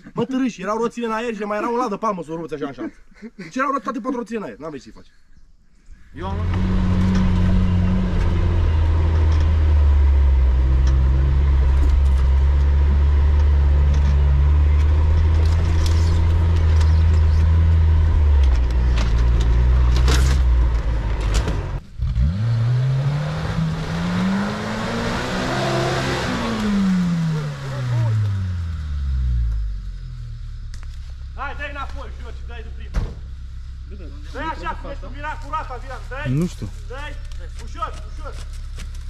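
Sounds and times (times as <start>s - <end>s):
off-road engine revving outside: 6.1s - 39.0s
engine running inside cab: 6.5s - 22.4s.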